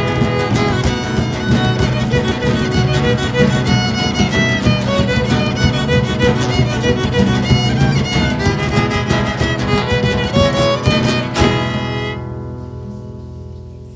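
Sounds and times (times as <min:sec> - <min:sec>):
fast violin melody: 0:00.0 - 0:12.3
guitar accompaniment: 0:00.0 - 0:13.9.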